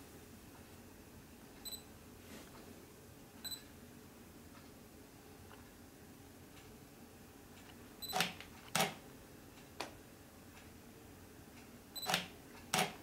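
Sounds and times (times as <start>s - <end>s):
camera beep: 8.0s - 8.4s, 12.0s - 12.3s.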